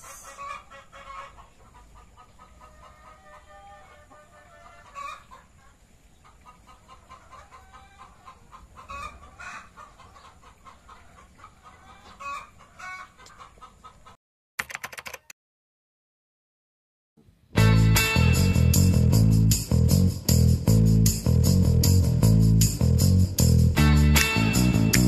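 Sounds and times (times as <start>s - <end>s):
chickens clucking: 0.0s - 14.2s.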